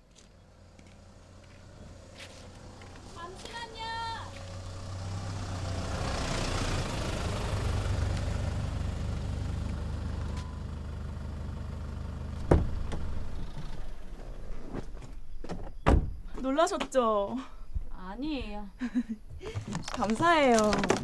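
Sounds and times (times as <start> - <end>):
truck engine idling: 0.0 - 14.6
truck door opening clunk: 12.4 - 16.3.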